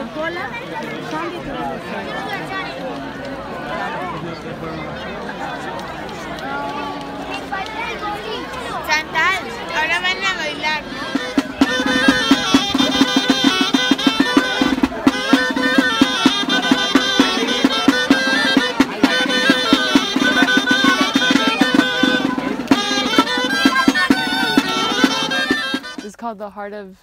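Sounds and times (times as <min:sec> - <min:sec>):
folk dance melody: 0:00.0 - 0:26.7
steady drumbeat: 0:08.8 - 0:26.2.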